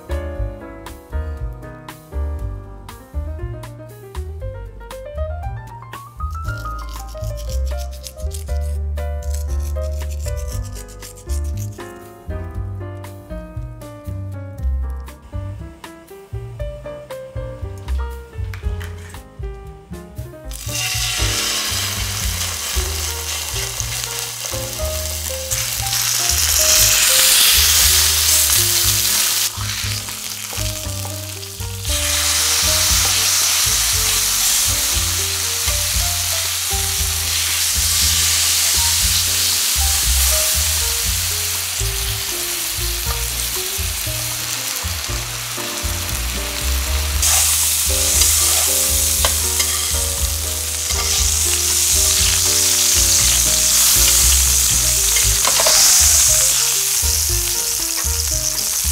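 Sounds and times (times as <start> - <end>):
background music: 0.0 - 58.9
meat sizzling in hot oil: 6.2 - 8.5, 9.3 - 11.8, 20.4 - 58.9.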